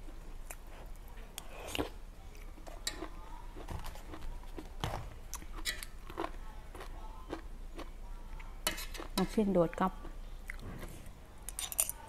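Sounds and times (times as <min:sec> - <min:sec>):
person chewing food: 0:00.0 - 0:09.2, 0:10.0 - 0:11.0.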